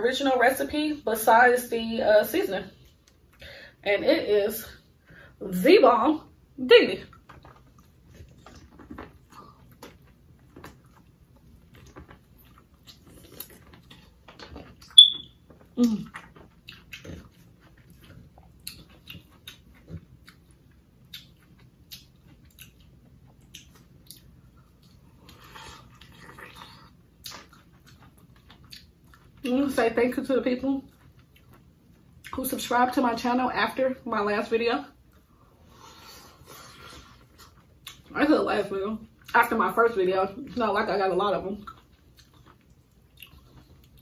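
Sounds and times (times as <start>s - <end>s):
chewing and lip smacking: 7.0s - 29.5s, 30.8s - 32.4s, 35.0s - 38.2s, 41.6s - 44.0s.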